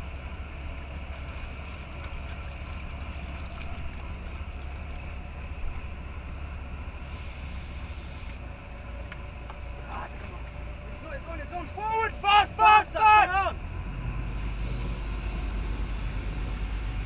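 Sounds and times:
boat engine running: 0:00.0 - 0:17.0
short hiss: 0:07.0 - 0:08.4.

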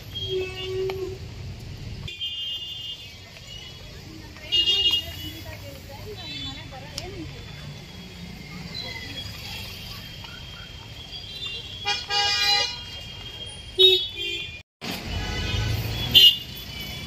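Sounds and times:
street noise: 0:00.0 - 0:17.0
vehicle horns honking: 0:11.4 - 0:17.0.

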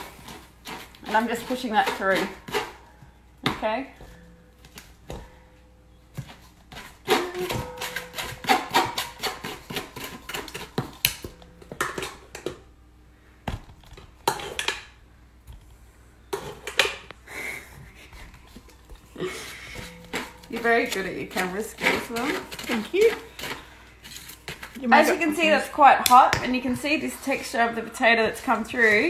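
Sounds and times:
metal spoon scraping a wire sieve: 0:00.0 - 0:02.8, 0:06.7 - 0:10.8, 0:19.7 - 0:25.5.

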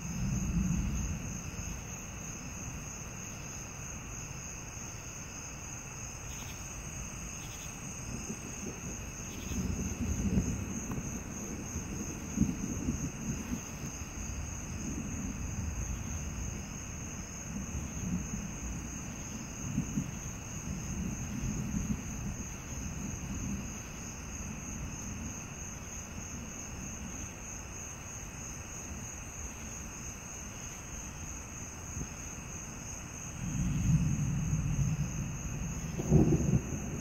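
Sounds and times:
distant thunder rumbling: 0:00.0 - 0:03.3, 0:07.2 - 0:27.3, 0:33.2 - 0:37.0
night insects trilling: 0:00.0 - 0:37.0.

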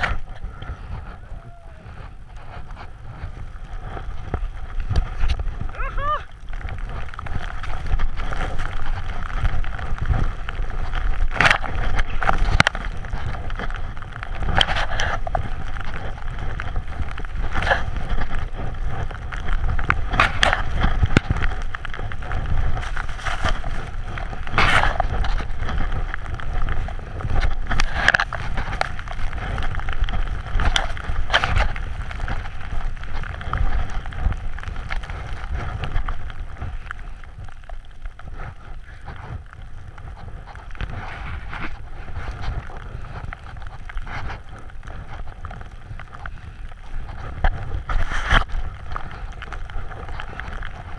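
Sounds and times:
wind on microphone: 0:00.0 - 0:50.9
snowboard swishing through snow: 0:06.8 - 0:37.4.

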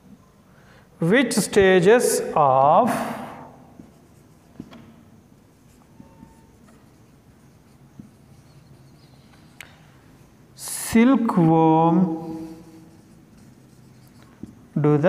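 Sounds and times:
marker writing on whiteboard: 0:03.5 - 0:10.6, 0:12.2 - 0:14.9.

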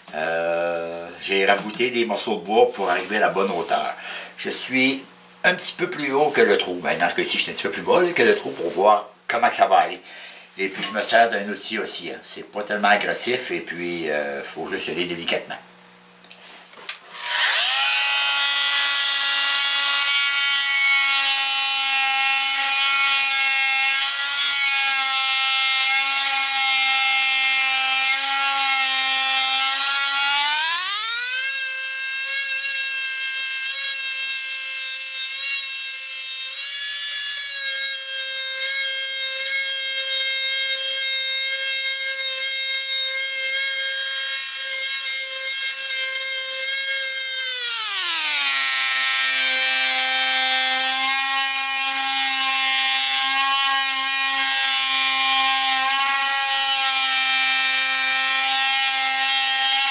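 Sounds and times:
tool cutting wood hiss: 0:00.0 - 0:08.9, 0:16.3 - 0:59.9
power tool motor whine: 0:16.9 - 0:59.9.

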